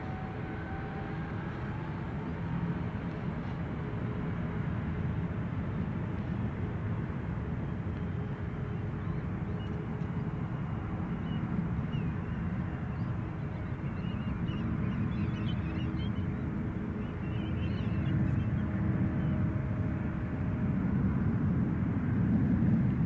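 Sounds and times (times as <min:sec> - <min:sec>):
distant jet engines rumbling: 0:00.0 - 0:23.0
faint birds calling: 0:08.7 - 0:19.4.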